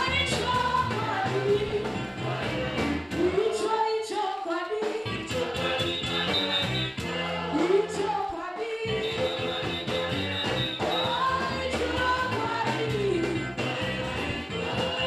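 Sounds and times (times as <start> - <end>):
woman singing gospel: 0.0 - 1.8, 3.2 - 5.1, 7.5 - 9.0, 10.9 - 13.5.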